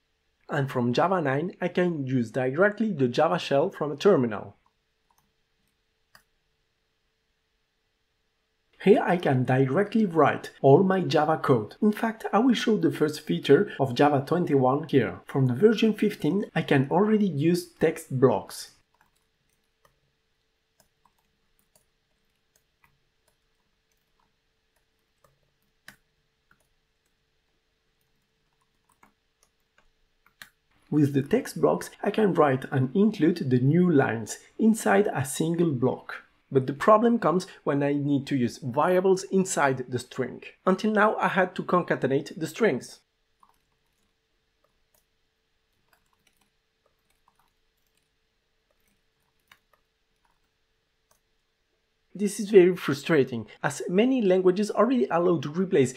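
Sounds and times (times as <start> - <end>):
faint steady hum: 0.0 - 55.9
keyboard typing clicks: 28.0 - 30.6, 43.4 - 45.1, 45.7 - 48.1.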